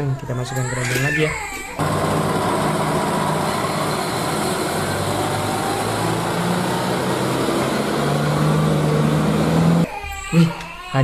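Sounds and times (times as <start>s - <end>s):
dump truck diesel engines droning: 1.8s - 9.9s.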